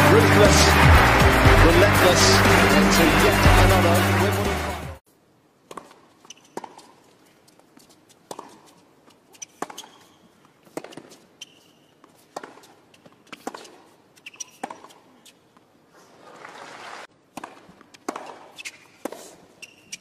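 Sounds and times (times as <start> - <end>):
racket striking tennis ball: 5.7 - 7.0, 8.2 - 8.8, 9.4 - 11.2, 12.2 - 15.0, 17.3 - 19.4
shoe squeaks: 6.2 - 15.6, 17.9 - 20.0.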